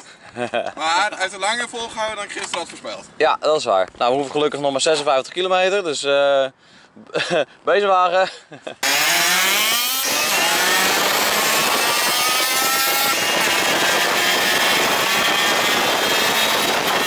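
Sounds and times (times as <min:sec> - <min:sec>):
moped engine running: 0:08.8 - 0:17.0
wind over microphone: 0:10.1 - 0:17.0.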